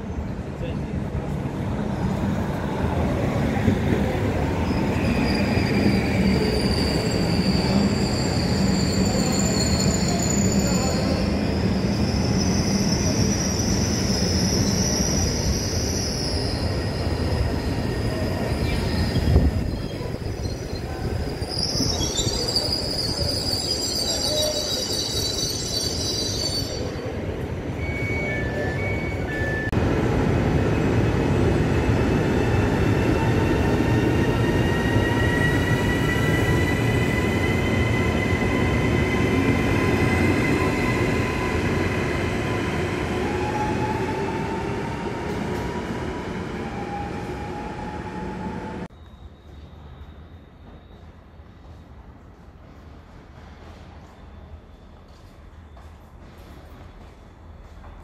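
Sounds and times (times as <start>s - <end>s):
electric train rumbling: 0.0s - 49.0s
brake squeal: 4.7s - 27.0s.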